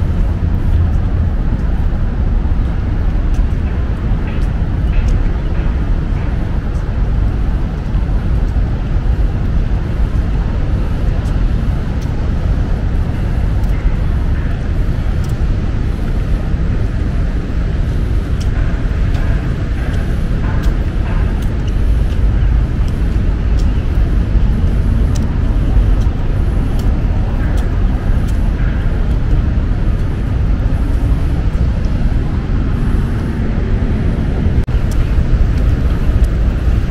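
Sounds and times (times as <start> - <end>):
road traffic rumble: 0.0 - 36.9
scattered clicks: 10.2 - 32.2, 34.2 - 36.9.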